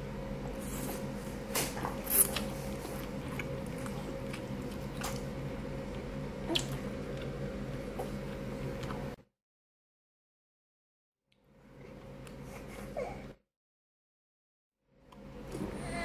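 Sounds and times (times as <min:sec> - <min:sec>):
chewing with wet mouth clicks: 0:02.2 - 0:09.1.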